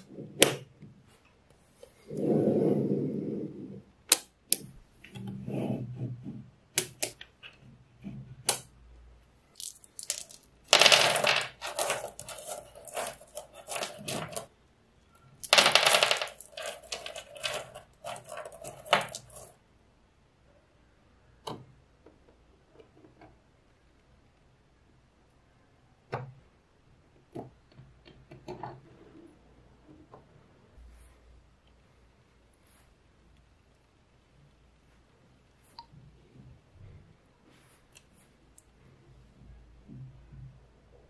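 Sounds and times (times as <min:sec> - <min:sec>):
pebbles clattering on table: 0:09.6 - 0:14.5, 0:15.4 - 0:19.6.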